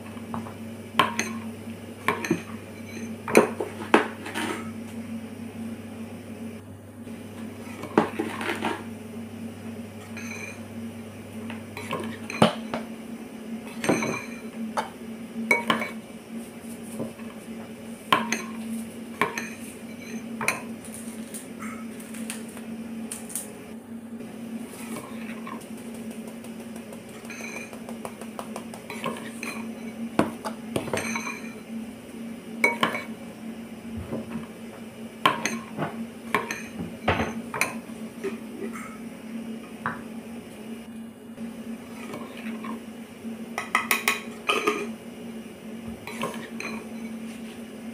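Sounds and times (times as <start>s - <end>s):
steady low hum: 0.0s - 47.9s
spoon and dishes clinking: 1.0s - 1.4s, 10.1s - 10.6s, 13.7s - 14.5s, 15.5s - 16.0s, 18.2s - 18.6s, 19.2s - 20.7s, 27.0s - 28.0s, 28.6s - 31.6s, 32.6s - 33.1s, 35.3s - 39.0s, 43.6s - 44.9s, 46.1s - 47.2s.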